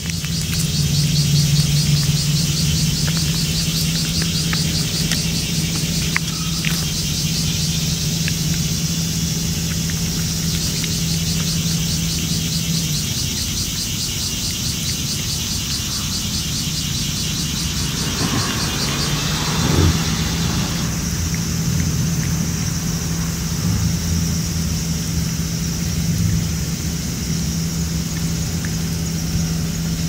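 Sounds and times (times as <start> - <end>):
insect chorus shrill pulsing: 0.1 - 26.2
steady low hum: 14.7 - 27.0.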